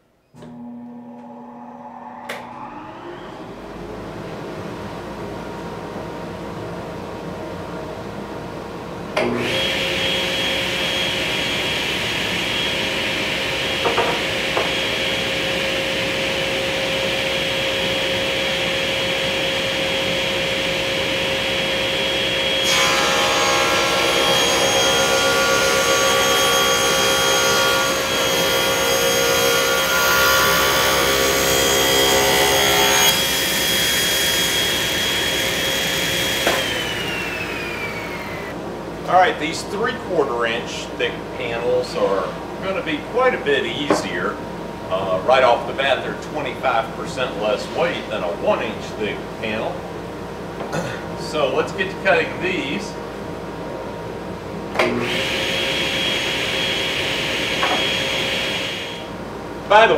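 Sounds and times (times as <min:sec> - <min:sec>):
table saw running: 0:00.4 - 0:04.3, 0:09.2 - 0:38.6, 0:54.8 - 0:59.1
saw blade cutting wood: 0:54.8 - 0:59.0.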